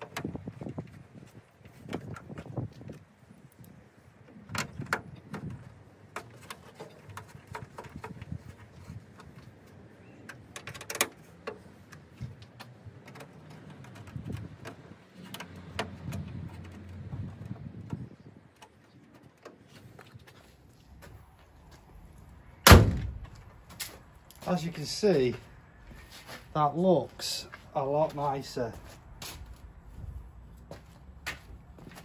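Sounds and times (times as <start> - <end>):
low background rumble: 20.8 - 24.4.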